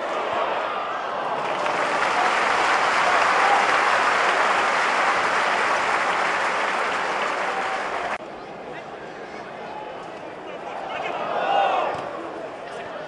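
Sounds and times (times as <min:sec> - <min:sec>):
stadium crowd clapping: 0:01.2 - 0:08.2.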